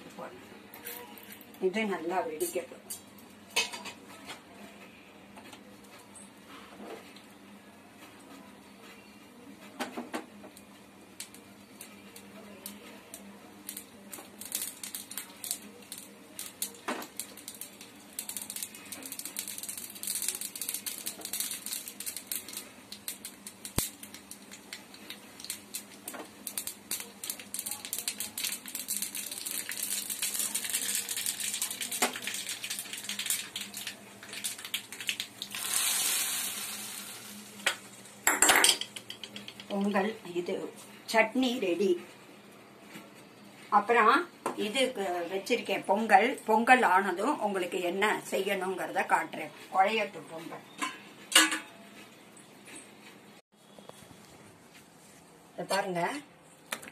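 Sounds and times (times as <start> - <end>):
seeds spluttering in hot oil: 11.1 - 39.7
oil sizzling: 13.6 - 39.7.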